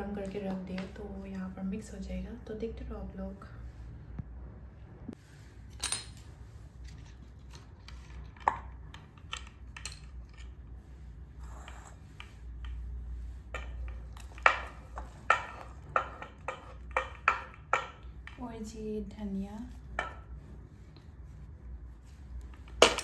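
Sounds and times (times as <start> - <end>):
metal spoon knocking on ceramic bowl: 14.4 - 18.1.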